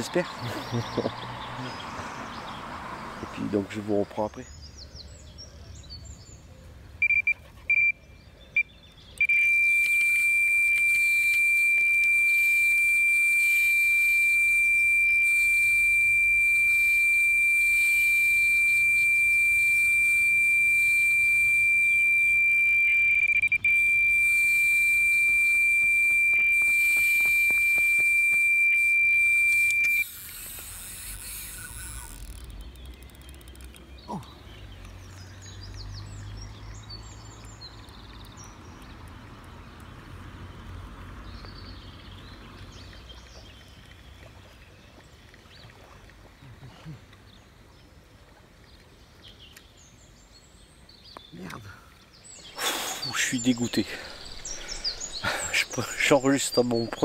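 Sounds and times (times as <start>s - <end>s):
bite alarm short beeps: 7.0s - 8.0s, 8.6s - 32.2s
bite alarm high tone: 9.2s - 30.1s.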